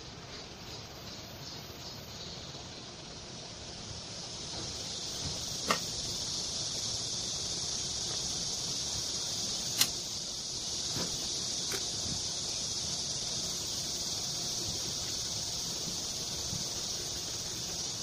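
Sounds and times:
steady high-pitched hiss: 0.0s - 18.0s.

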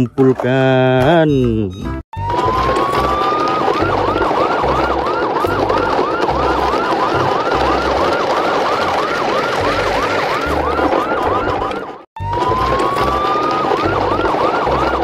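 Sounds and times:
emergency vehicle siren: 2.2s - 15.0s.

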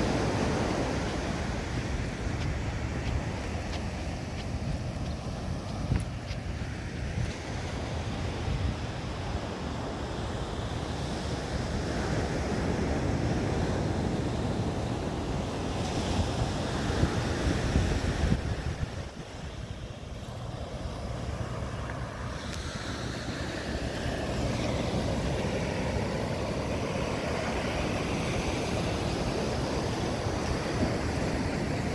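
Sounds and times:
ocean surf breaking: 0.0s - 6.0s, 11.2s - 31.9s
wind buffeting microphone: 0.0s - 9.5s, 15.4s - 22.2s.

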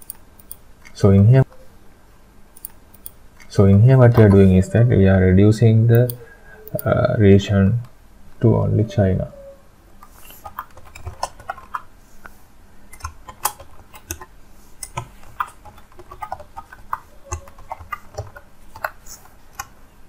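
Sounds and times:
typing on computer keyboard: 0.0s - 0.6s, 10.4s - 11.8s, 12.9s - 19.7s.

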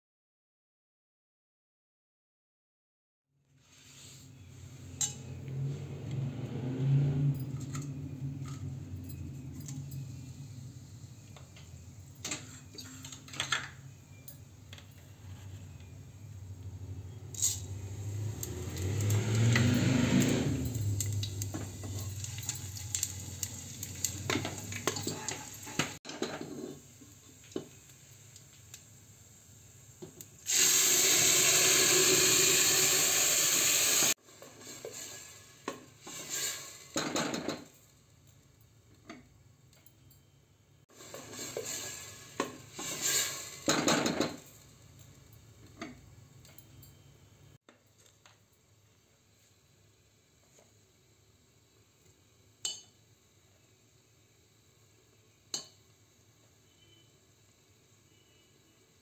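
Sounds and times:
spoon stirring and scraping pan: 11.2s - 14.2s, 17.2s - 27.9s, 41.0s - 44.7s
food sizzling in hot oil: 17.3s - 37.8s, 40.9s - 44.9s.

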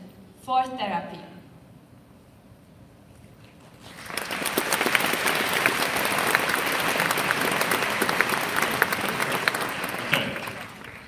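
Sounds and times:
audience applause: 3.8s - 11.0s.

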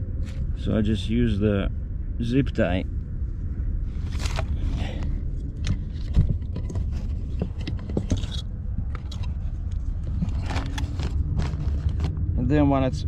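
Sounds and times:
low rumble: 0.0s - 13.0s
cable rubbing against plastic trim: 5.7s - 12.2s.

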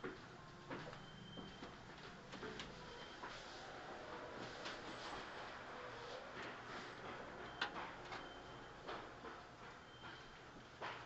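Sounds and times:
electric train car hum: 2.7s - 10.0s
faint irregular clicks and knocks: 6.3s - 10.2s.

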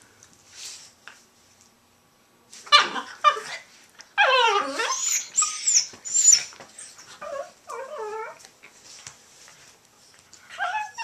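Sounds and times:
dog whining: 4.2s - 8.4s, 10.5s - 11.0s
small dogs squealing: 4.2s - 8.4s
faint rustles and clicks: 5.8s - 11.0s.

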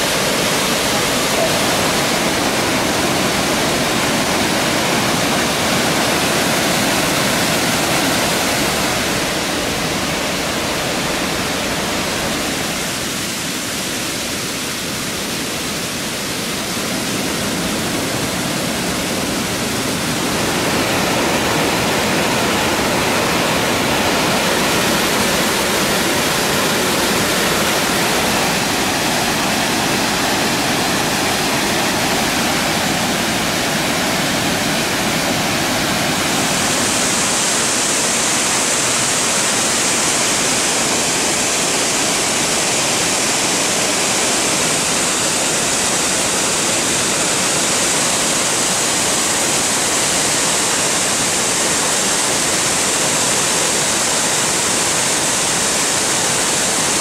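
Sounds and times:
waterfall splashing onto rocks: 0.0s - 57.0s.

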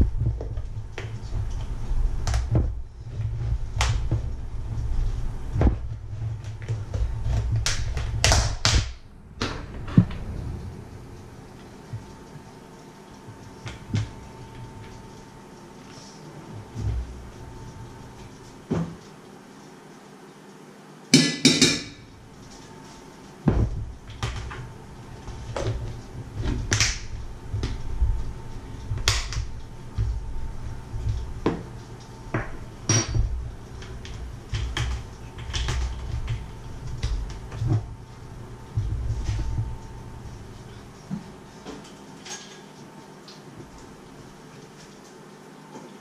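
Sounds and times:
low rumble: 0.0s - 12.7s, 23.5s - 40.9s.

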